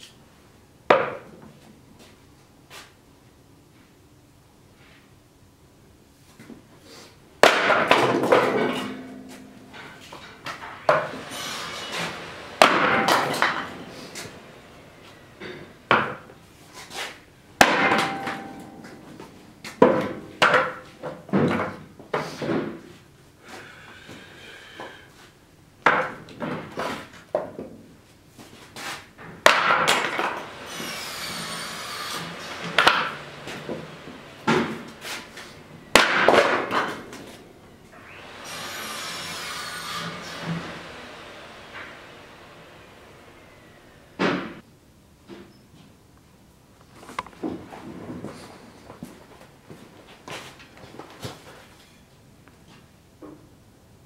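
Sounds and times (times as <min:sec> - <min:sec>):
wood splitting crack: 0:07.4 - 0:08.9, 0:29.4 - 0:35.0, 0:35.9 - 0:37.1
wood pieces knocking down: 0:07.4 - 0:14.4, 0:17.6 - 0:18.8, 0:29.4 - 0:30.6, 0:32.2 - 0:35.0, 0:35.9 - 0:37.3.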